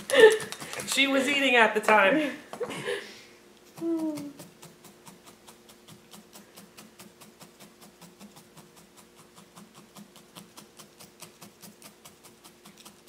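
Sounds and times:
faint steady hum: 0.0s - 13.0s
felting needle stabbing wool: 3.7s - 13.0s.

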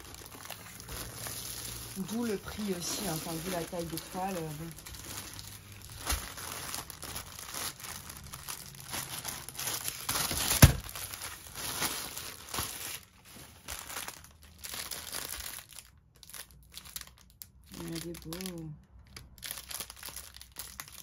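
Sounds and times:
plastic bags crinkling: 0.0s - 21.0s.

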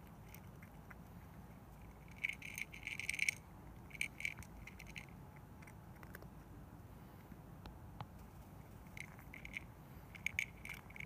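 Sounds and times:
cat crunching dry food: 1.8s - 6.3s, 8.8s - 11.0s.

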